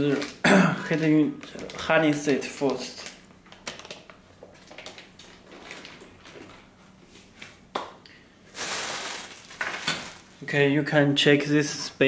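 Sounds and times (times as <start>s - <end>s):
plastic crinkling: 0.0s - 6.7s, 8.5s - 10.5s
plastic packaging rustling: 0.0s - 6.8s, 8.5s - 10.5s.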